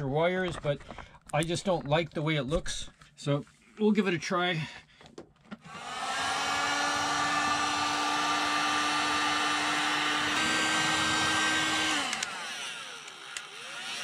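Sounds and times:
heat gun motor whine: 0:05.7 - 0:14.0.

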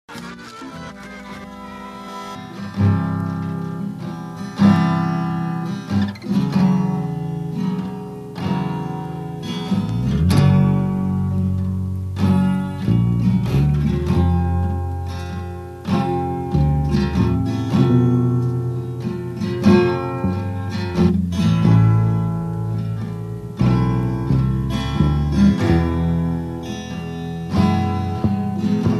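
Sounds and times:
acoustic guitar strumming chords: 0:00.1 - 0:28.9
low bass line: 0:09.7 - 0:28.9.

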